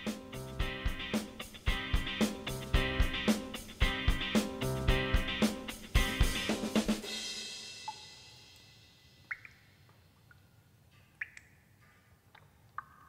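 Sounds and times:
soundtrack music: 0.0 - 7.2.

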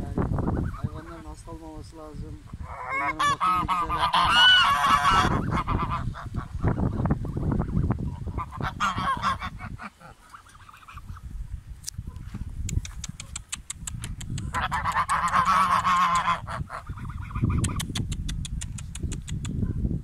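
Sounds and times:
geese honking: 2.7 - 11.2, 14.6 - 17.7
quick clicks: 12.6 - 15.4, 17.6 - 19.6.

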